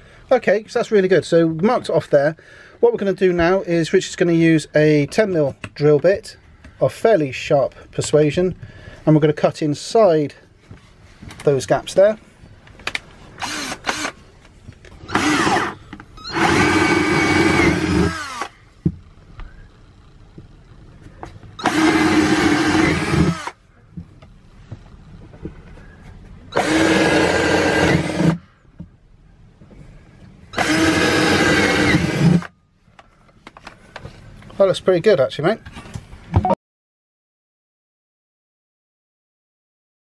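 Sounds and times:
cordless drill boring wood: 13.4s - 14.2s, 15.0s - 18.6s, 21.6s - 23.6s, 26.5s - 28.4s, 30.6s - 32.5s.

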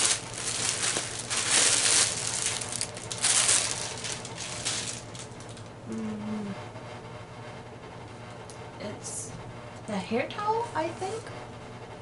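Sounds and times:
plastic bag crinkling: 0.0s - 5.7s.

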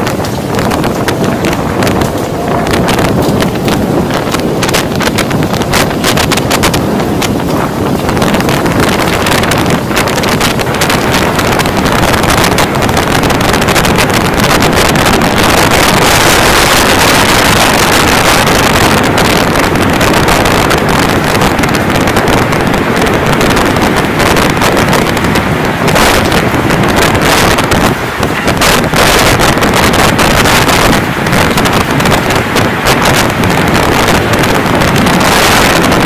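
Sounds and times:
heavy wind-driven rain: 0.0s - 36.0s
storm wind buffeting microphone: 0.0s - 36.0s.

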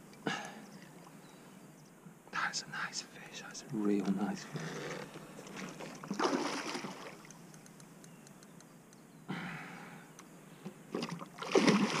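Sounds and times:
fish splashing at water surface: 10.9s - 12.0s.

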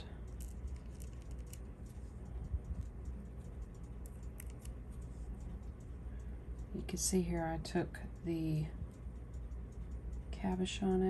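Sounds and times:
steady low hum: 0.0s - 11.0s
metal tool tip ticking and scraping: 0.2s - 6.7s.

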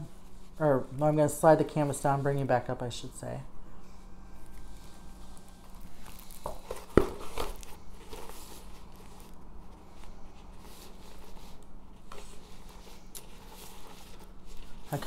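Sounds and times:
plastic film crinkling and rustling: 4.4s - 15.0s.

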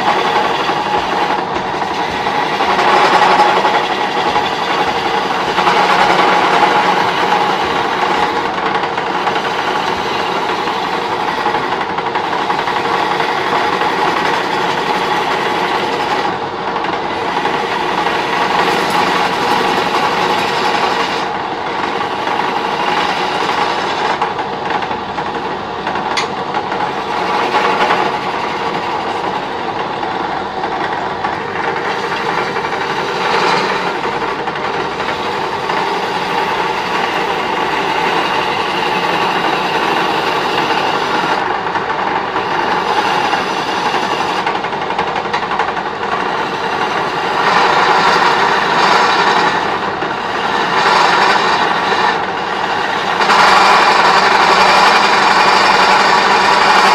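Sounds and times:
chisel scraping spinning wood: 0.0s - 56.9s
wood lathe drone: 0.0s - 56.9s.

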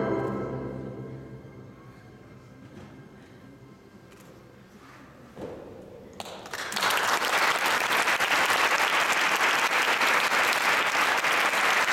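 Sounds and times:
audience applause: 6.2s - 11.9s.

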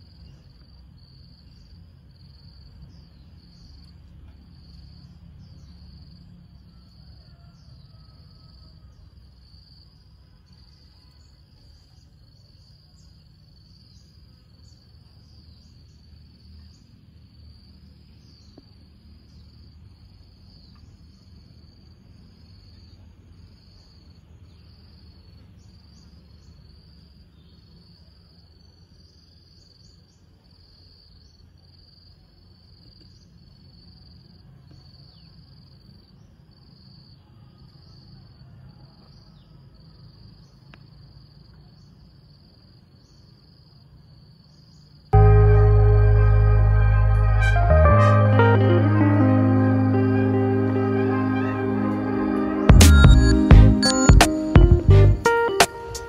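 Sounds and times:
crickets chirping: 0.0s - 45.2s
low steady rumble: 45.2s - 48.8s.

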